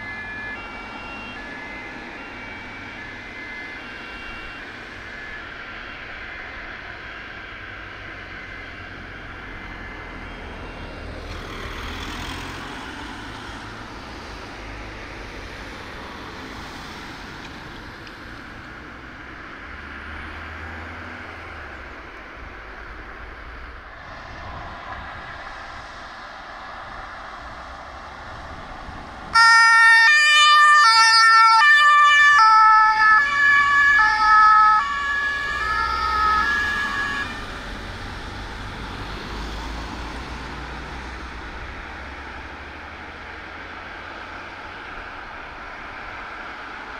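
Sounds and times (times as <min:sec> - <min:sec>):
two-tone siren: 0:00.0 - 0:19.1, 0:29.3 - 0:39.0
vehicle noise: 0:00.0 - 0:46.9.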